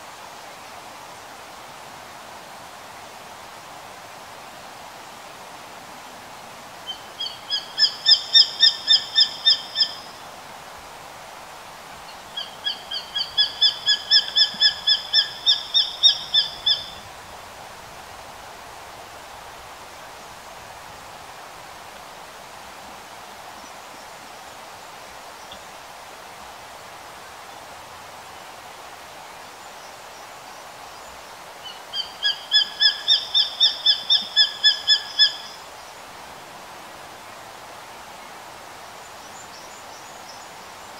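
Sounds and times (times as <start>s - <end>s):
hawk whistled calls: 31.9s - 35.6s.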